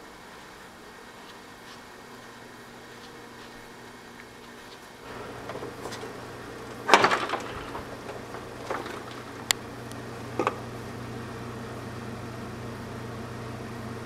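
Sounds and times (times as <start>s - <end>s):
low steady hum: 0.0s - 14.0s
grill lid shutting: 5.1s - 11.0s.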